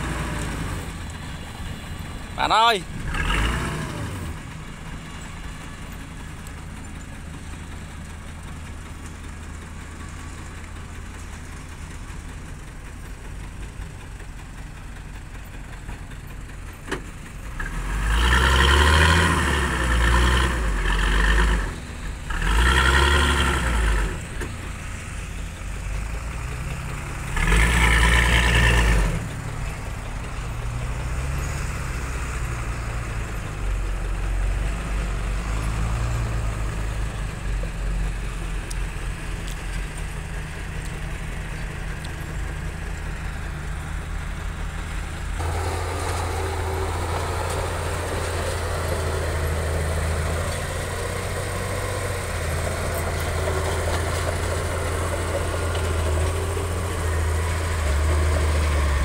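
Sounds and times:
truck engine idling and revving: 0.0s - 59.0s.

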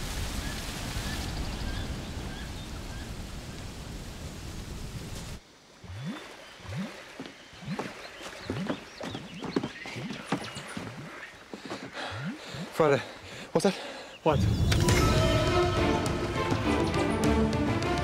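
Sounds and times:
swamp ambience: 0.0s - 17.4s
birds chirping: 5.6s - 15.8s.

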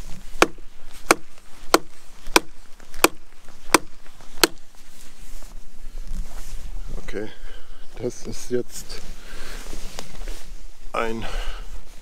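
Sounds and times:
knife chopping into wood: 0.4s - 4.7s.

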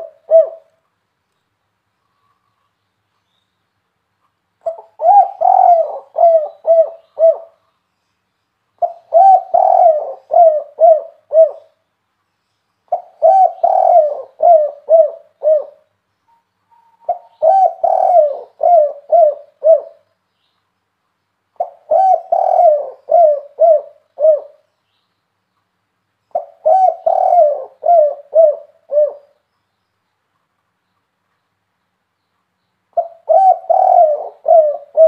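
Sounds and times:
dove cooing: 0.0s - 0.7s, 4.6s - 7.6s, 8.8s - 11.8s, 12.9s - 15.9s, 16.7s - 20.1s, 21.6s - 24.7s, 26.3s - 29.4s, 33.0s - 35.0s.

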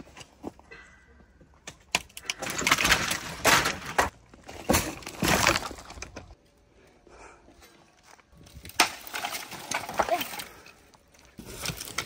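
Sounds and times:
reed canes crackling and rustling: 8.0s - 12.0s.

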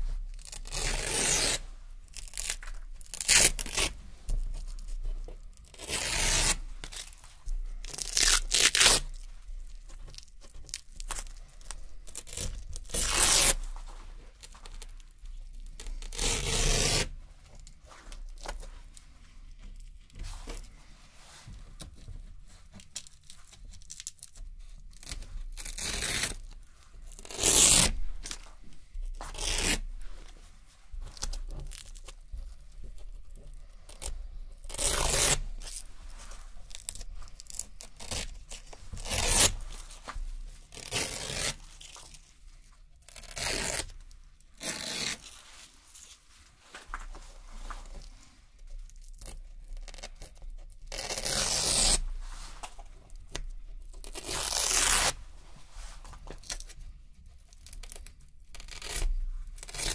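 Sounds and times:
hook-and-loop fastener ripping: 0.4s - 7.2s, 7.8s - 13.7s, 15.7s - 17.1s, 22.8s - 28.5s, 29.1s - 29.9s, 32.9s - 35.9s, 36.7s - 42.3s, 43.0s - 46.2s, 48.9s - 55.2s, 57.5s - 59.9s.

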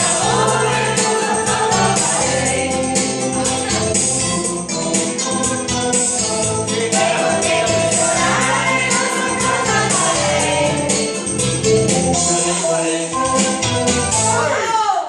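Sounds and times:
group of people singing: 0.0s - 4.2s, 4.9s - 14.5s
karaoke backing track: 0.0s - 15.0s.

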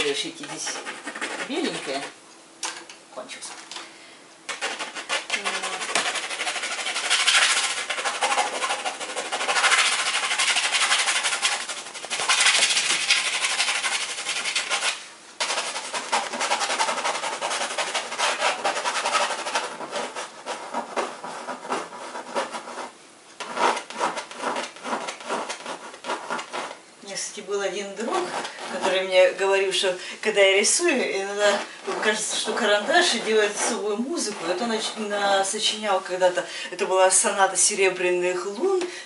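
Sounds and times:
pencil scratching on canvas: 0.0s - 2.2s, 4.5s - 26.8s, 27.7s - 35.8s.

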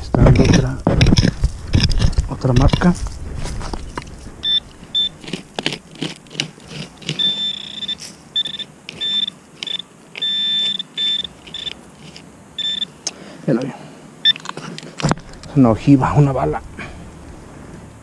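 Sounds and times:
knocks and scrapes: 0.0s - 8.2s, 14.5s - 15.6s
metal detector beeping: 4.4s - 5.2s, 7.0s - 13.0s, 14.2s - 14.5s.

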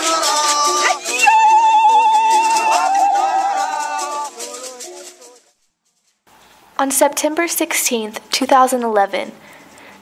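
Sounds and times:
voice holding wavering note: 0.0s - 4.3s
group of voices singing: 0.0s - 5.5s
rhythmic percussive clicks: 0.0s - 6.1s.

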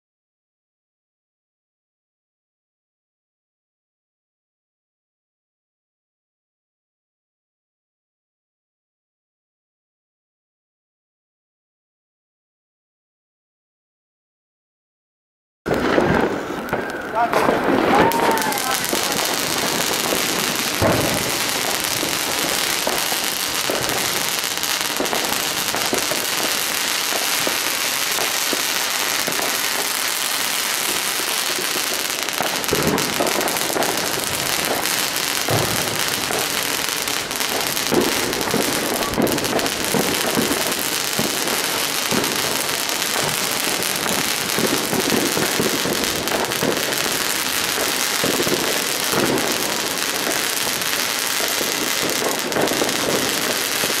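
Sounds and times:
fireworks crackling: 15.7s - 54.0s
loud firework bangs: 15.7s - 54.0s.

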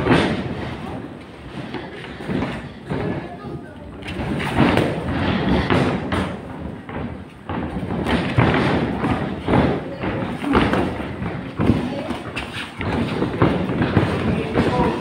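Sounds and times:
feet hitting ring canvas: 0.0s - 3.4s, 4.0s - 15.0s.

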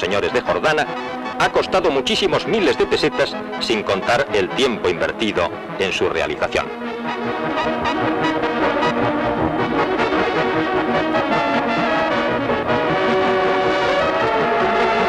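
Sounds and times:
brass instrumental music: 0.0s - 15.0s.

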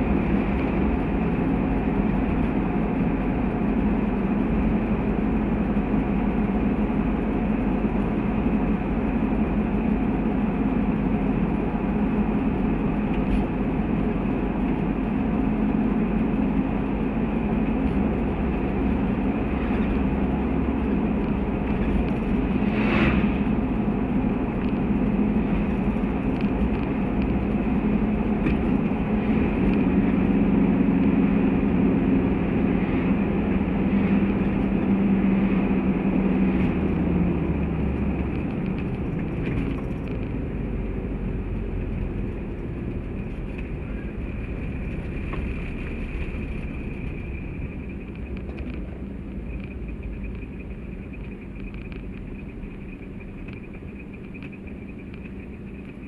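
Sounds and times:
car engine drone inside cabin: 0.0s - 56.0s
road and tyre noise: 0.0s - 56.0s.

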